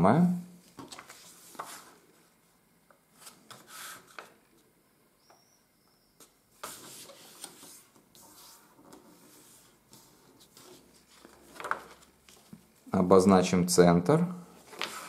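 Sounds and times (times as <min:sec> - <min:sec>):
paper rustling and rubbing: 0:00.8 - 0:02.0, 0:06.6 - 0:12.6, 0:14.6 - 0:15.0.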